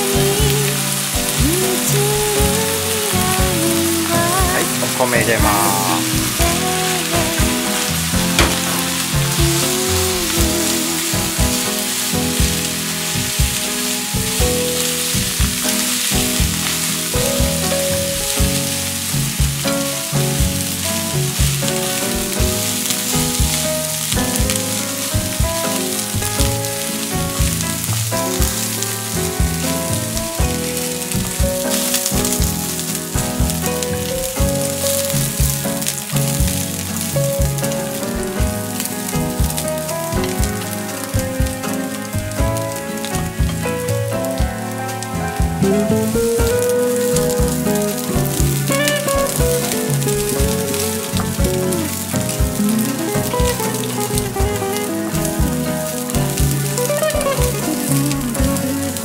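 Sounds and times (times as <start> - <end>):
background music with a beat: 0.0 - 59.0
rice sizzling in a frying pan: 0.0 - 59.0
chopsticks stirring: 4.1 - 18.8.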